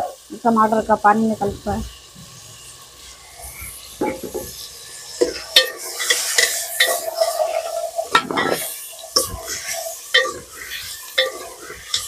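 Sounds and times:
food sizzling in oil: 0:00.0 - 0:12.0
metal ladle scraping pot: 0:03.4 - 0:12.0.

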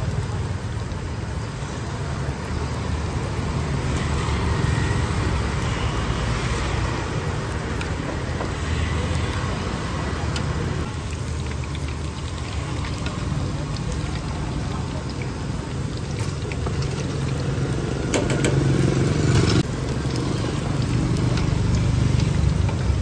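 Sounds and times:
hot oil sizzling: 0:00.0 - 0:23.0
small crackles: 0:04.0 - 0:23.0.

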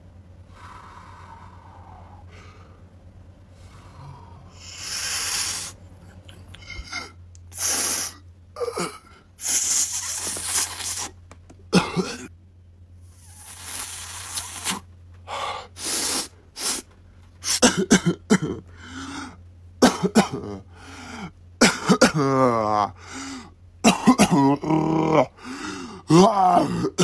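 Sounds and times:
noisy breathing: 0:00.0 - 0:11.2, 0:13.0 - 0:17.6, 0:18.6 - 0:19.5, 0:20.6 - 0:21.5, 0:22.9 - 0:23.6, 0:25.3 - 0:26.9
faint low hum: 0:00.0 - 0:27.0
person coughing: 0:11.7 - 0:12.3, 0:17.5 - 0:18.7, 0:19.8 - 0:20.6, 0:21.6 - 0:22.6, 0:23.8 - 0:24.8, 0:26.1 - 0:27.0.

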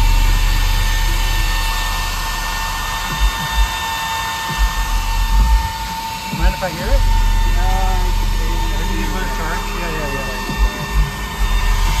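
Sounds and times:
deep bass pulses from subwoofers: 0:00.0 - 0:12.0
high-pitched whine: 0:00.0 - 0:12.0.

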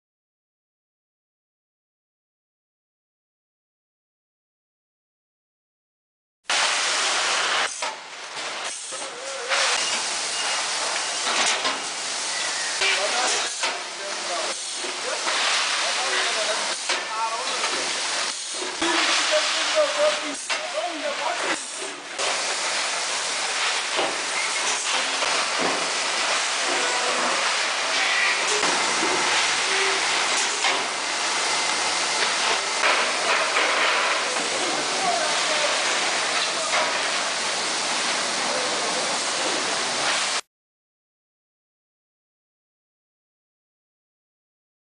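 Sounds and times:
bagging machinery hissing: 0:06.5 - 0:40.4.

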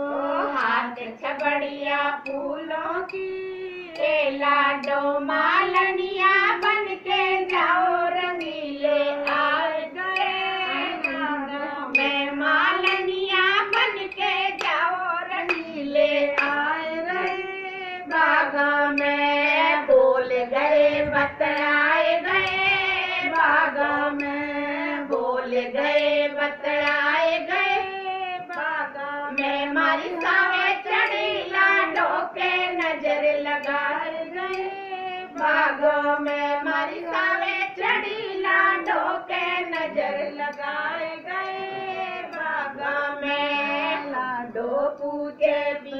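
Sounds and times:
women singing folk song: 0:00.0 - 0:45.9
hand claps: 0:13.7 - 0:14.8, 0:15.4 - 0:16.6.

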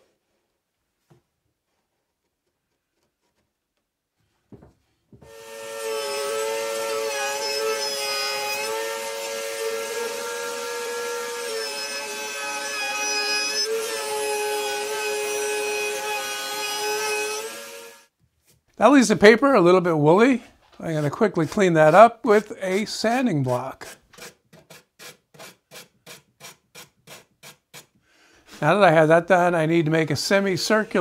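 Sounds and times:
router whining: 0:05.2 - 0:18.1.

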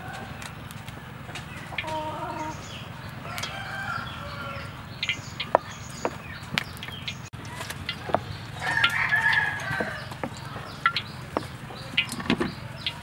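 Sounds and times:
chickens clucking: 0:00.0 - 0:13.0
rooster crowing: 0:03.2 - 0:04.8, 0:08.6 - 0:10.3.

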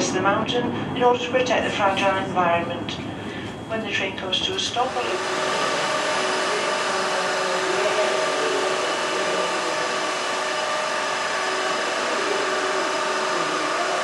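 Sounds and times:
funicular railway whirring hum: 0:04.1 - 0:14.0.

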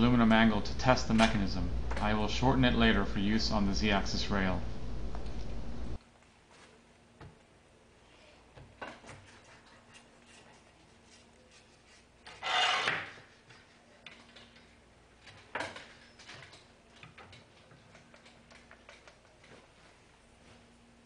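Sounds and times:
metallic scrape: 0:11.6 - 0:13.7
small clicks and rubbing: 0:13.5 - 0:20.0.

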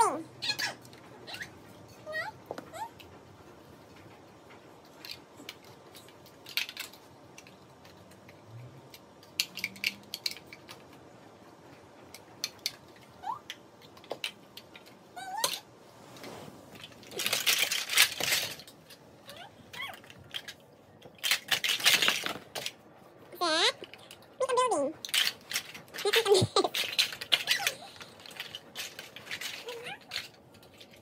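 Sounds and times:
plastic blocks clattering: 0:04.9 - 0:11.0, 0:16.8 - 0:22.8, 0:23.5 - 0:31.0.

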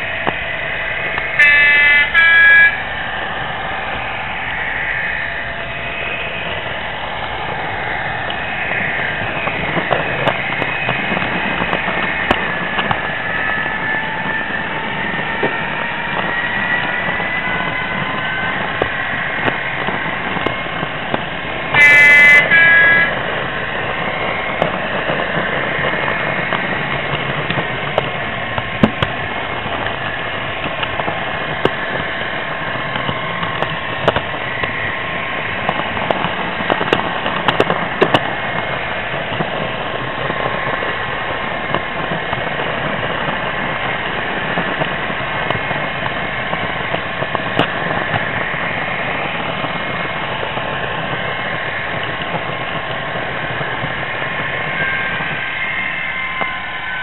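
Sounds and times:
model train hum: 0:00.0 - 0:57.0
two-tone train horn: 0:00.6 - 0:03.1, 0:21.7 - 0:23.5, 0:54.6 - 0:57.0.

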